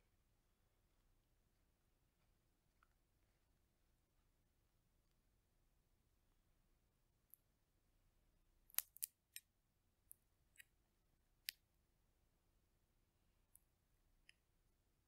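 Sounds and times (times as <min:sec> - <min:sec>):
chestnut shell cracking: 0:08.7 - 0:09.2.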